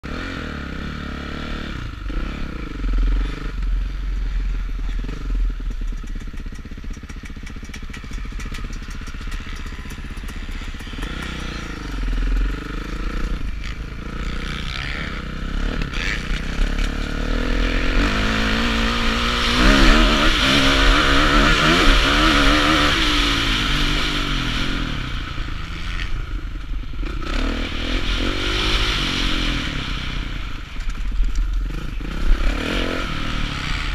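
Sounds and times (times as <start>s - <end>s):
motocross engine revving: 0.0s - 33.9s.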